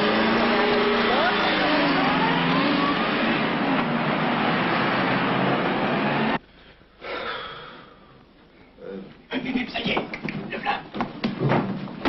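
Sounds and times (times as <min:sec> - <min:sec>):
car engine and road noise: 0:00.0 - 0:06.4.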